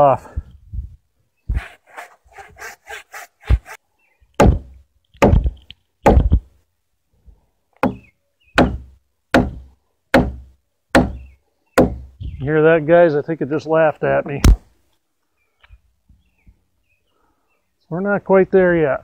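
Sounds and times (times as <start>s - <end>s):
hand saw sawing wood: 1.5s - 3.8s
hammer blows on wood: 7.8s - 12.2s.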